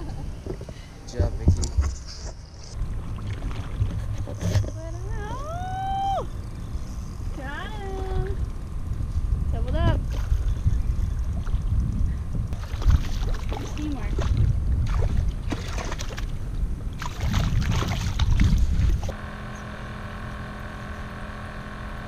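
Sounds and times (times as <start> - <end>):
steady hum of held tones: 0.0 - 22.0
wind on microphone: 3.1 - 19.2.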